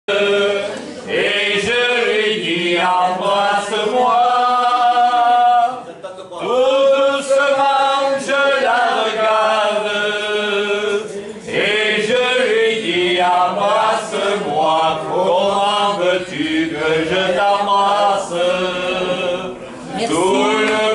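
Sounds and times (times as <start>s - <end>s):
person singing unaccompanied: 11.7s - 20.9s.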